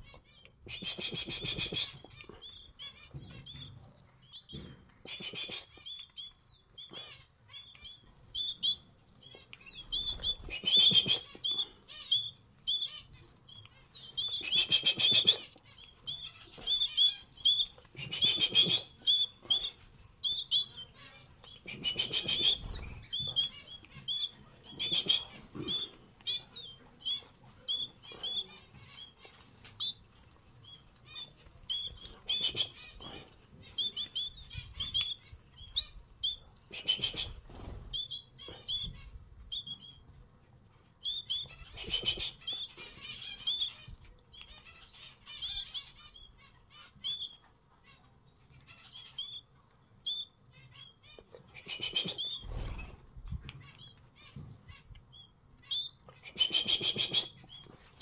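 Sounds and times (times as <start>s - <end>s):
canaries chirping: 0.0s - 58.0s
wings fluttering: 0.6s - 3.6s, 8.2s - 44.0s, 51.5s - 58.0s.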